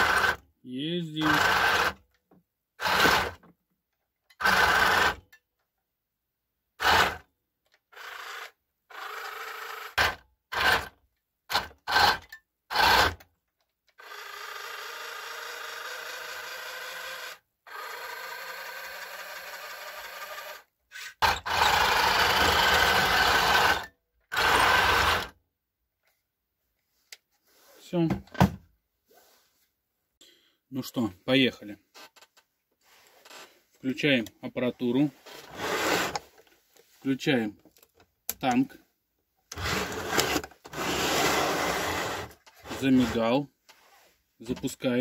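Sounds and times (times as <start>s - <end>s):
toy tank motors whirring: 0.0s - 0.4s, 1.1s - 2.0s, 2.8s - 3.4s, 4.3s - 5.2s, 6.8s - 7.2s, 7.8s - 13.3s, 13.9s - 25.4s, 39.5s - 43.2s.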